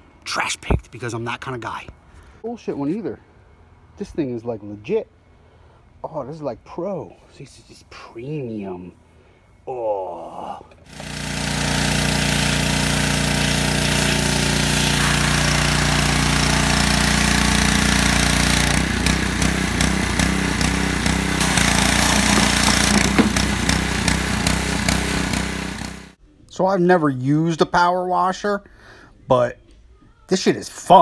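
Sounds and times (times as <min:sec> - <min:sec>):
pressure washer engine running: 0:10.9 - 0:26.2
water jet hissing against plastic: 0:11.4 - 0:18.7, 0:21.4 - 0:26.0.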